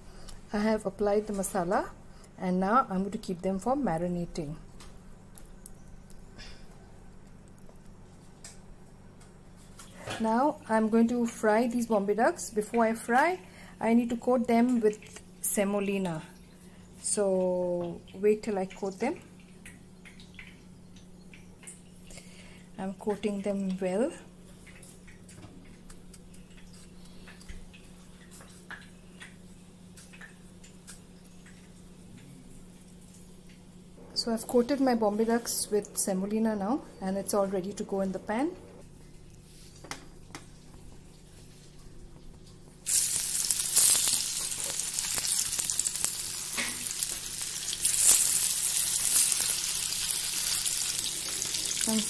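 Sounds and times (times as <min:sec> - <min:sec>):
low steady hum: 0:00.0 - 0:52.0
hot oil sizzling: 0:42.7 - 0:52.0.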